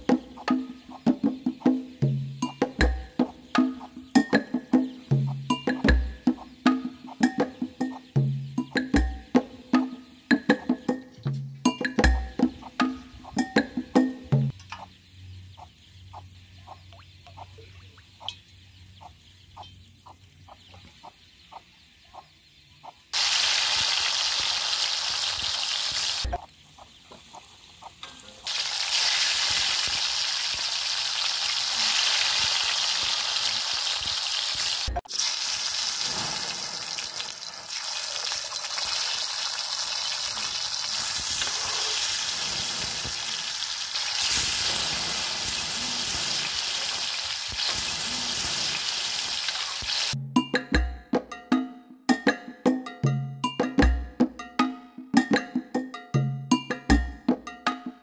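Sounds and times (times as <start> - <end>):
oil sizzling in wok: 23.2 - 26.3, 27.2 - 50.2.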